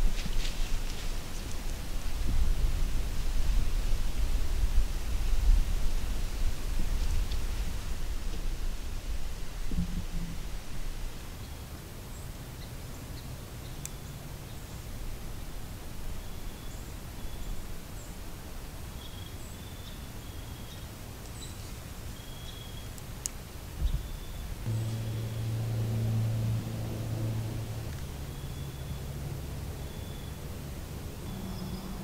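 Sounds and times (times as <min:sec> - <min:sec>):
low hiss and rumble: 0:00.0 - 0:32.0
low rumbling: 0:23.8 - 0:32.0
short low hum: 0:24.6 - 0:31.6.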